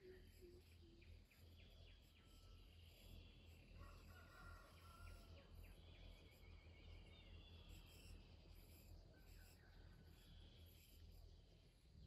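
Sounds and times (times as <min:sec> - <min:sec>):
faint rooster crowing: 0:03.8 - 0:05.6.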